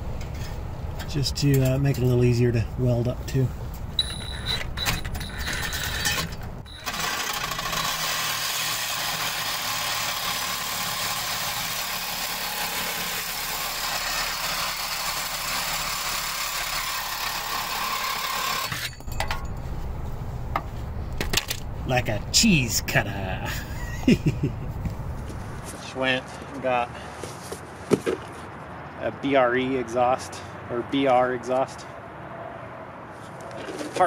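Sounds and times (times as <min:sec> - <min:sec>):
power grinder cutting metal: 0:05.7 - 0:19.0
metal handling clatter: 0:18.7 - 0:19.8.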